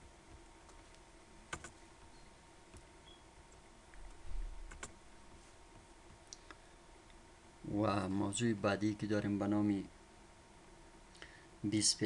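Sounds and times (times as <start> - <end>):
faint room hiss: 0.0 - 12.0.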